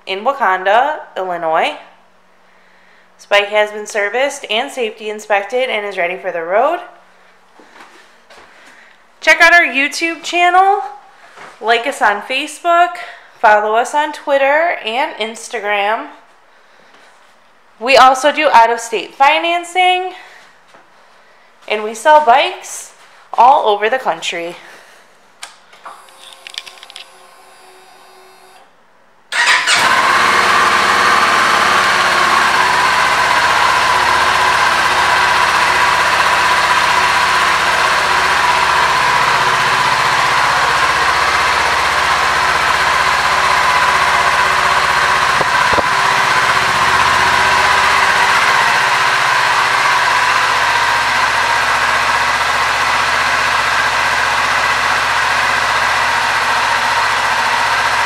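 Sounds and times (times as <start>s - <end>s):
motorcycle engine starting and idling: 25.9s - 28.7s, 29.3s - 58.0s.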